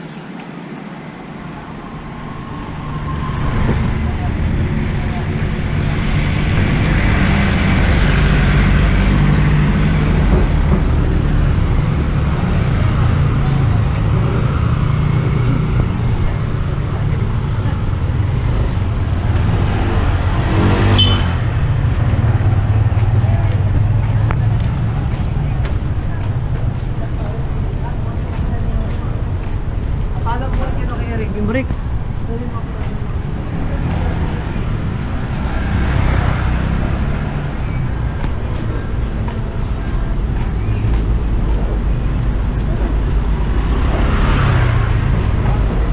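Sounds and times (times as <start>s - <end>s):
street traffic rumble: 0.0s - 45.9s
engine revving: 17.3s - 23.1s.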